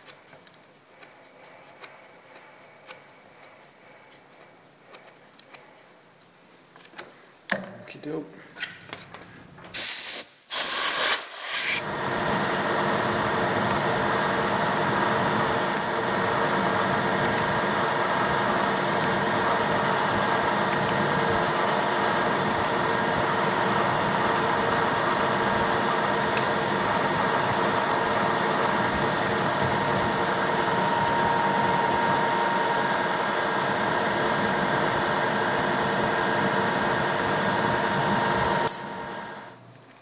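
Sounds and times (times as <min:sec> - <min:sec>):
short loud hiss bursts: 0:09.7 - 0:11.8
milling machine spindle hum: 0:11.8 - 0:39.6.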